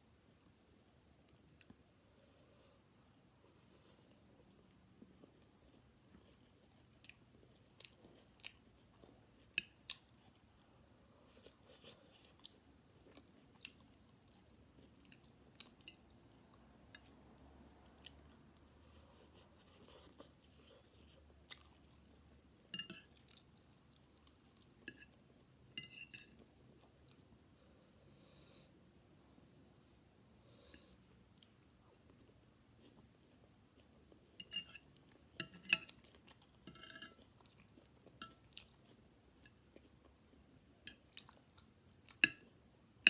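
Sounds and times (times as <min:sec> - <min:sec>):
fork scraping ceramic plate: 0:36.7 - 0:37.2.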